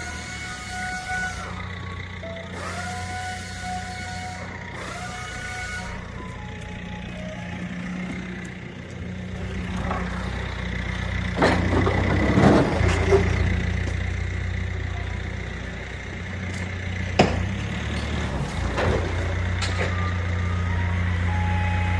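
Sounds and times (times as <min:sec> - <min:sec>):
vehicle engine idling: 0:00.0 - 0:21.9.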